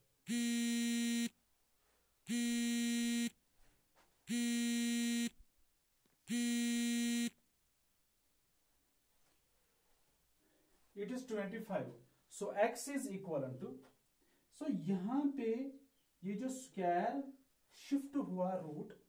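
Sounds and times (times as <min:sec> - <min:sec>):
electronic buzzer beeping: 0:00.2 - 0:01.4, 0:02.3 - 0:03.4, 0:04.3 - 0:05.4, 0:06.3 - 0:07.4.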